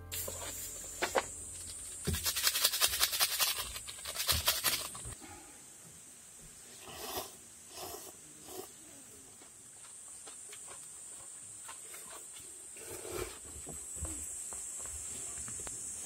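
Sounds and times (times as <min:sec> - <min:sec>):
steady high hiss: 0:00.0 - 0:16.0
plastic packet crinkling: 0:01.6 - 0:05.2
slurping noodles: 0:06.8 - 0:08.7.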